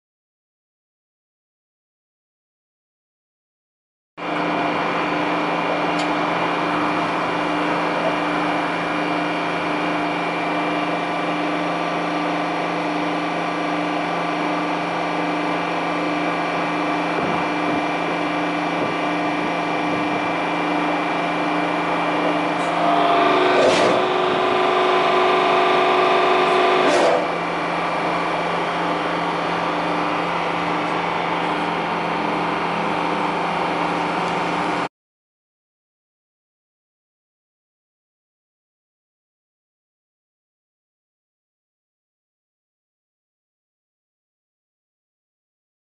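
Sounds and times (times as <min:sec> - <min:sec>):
hydraulic power unit humming: 0:04.2 - 0:34.9
hydraulic whine under load: 0:04.2 - 0:34.9.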